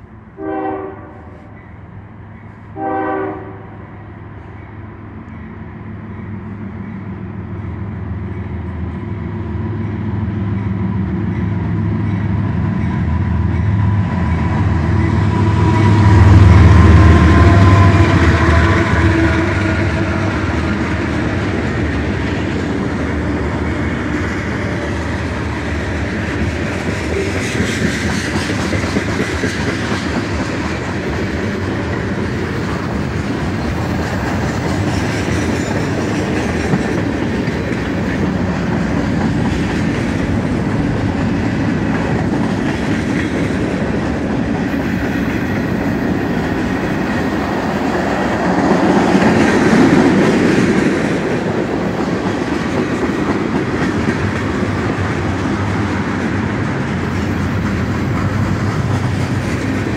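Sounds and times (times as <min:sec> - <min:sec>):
train horn blasts: 0:00.4 - 0:01.6, 0:02.8 - 0:04.1, 0:15.5 - 0:20.5
freight cars clickety-clack: 0:09.7 - 0:59.9.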